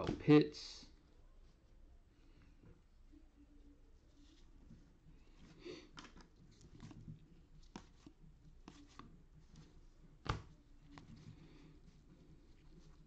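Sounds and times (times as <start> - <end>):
trading cards flipping: 5.9 - 11.2.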